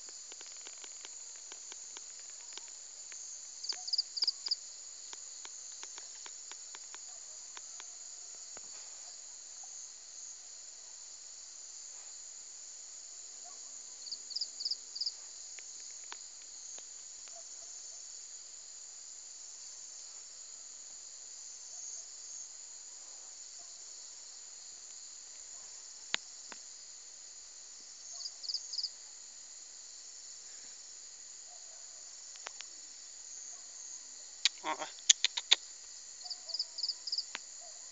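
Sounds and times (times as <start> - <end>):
insects buzzing: 0.0 - 37.9
sharp click: 34.5 - 35.6
loud quick chirps: 34.5 - 35.7.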